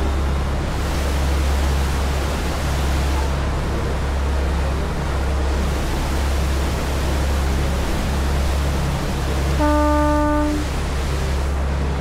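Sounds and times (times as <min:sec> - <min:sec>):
ferry engines droning: 0:00.0 - 0:12.0
wind and water rushing: 0:00.0 - 0:12.0
ship's horn blast: 0:09.5 - 0:11.0.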